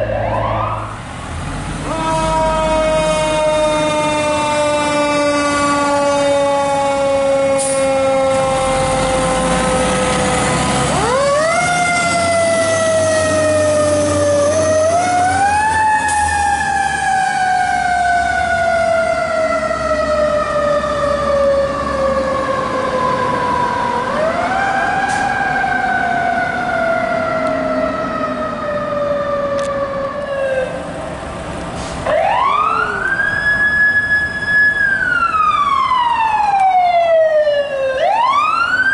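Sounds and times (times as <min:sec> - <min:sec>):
higher siren: 0:00.0 - 0:01.0, 0:01.8 - 0:31.0, 0:32.1 - 0:38.9
truck engine rumble: 0:00.0 - 0:38.9
mechanical siren winding down: 0:01.9 - 0:30.8.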